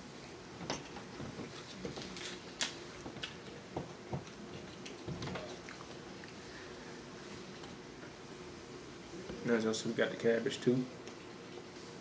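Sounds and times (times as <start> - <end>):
chewing: 4.2 - 6.5.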